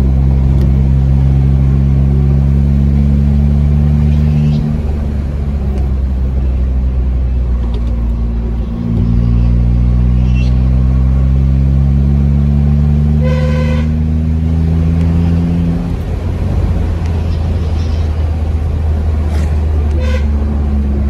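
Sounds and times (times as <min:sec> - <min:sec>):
car engine accelerating: 0:00.0 - 0:21.0
car horn toot: 0:13.1 - 0:14.1, 0:19.9 - 0:20.5.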